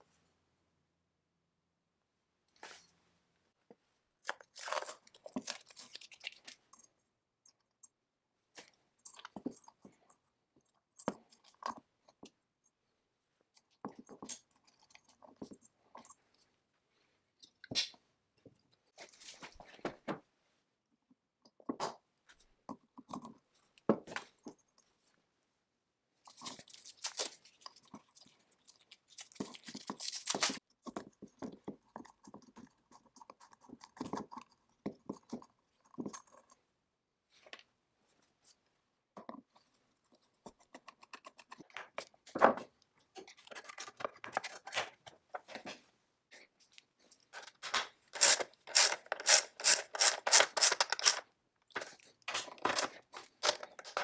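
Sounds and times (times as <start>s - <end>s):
hand tools scraping metal: 48.2s - 51.2s
socket ratchet clicking: 48.2s - 51.2s.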